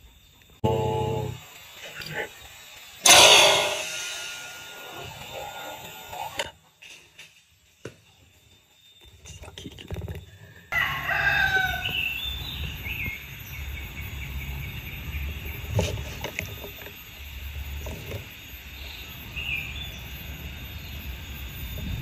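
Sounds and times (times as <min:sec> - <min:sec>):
sharp click: 0:03.0 - 0:05.4
rooster crowing: 0:10.7 - 0:12.3
small birds chirping: 0:11.7 - 0:17.8.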